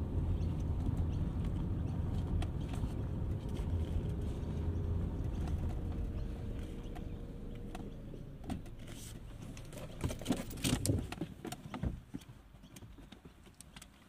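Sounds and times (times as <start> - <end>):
car engine idling: 0.0 - 11.2.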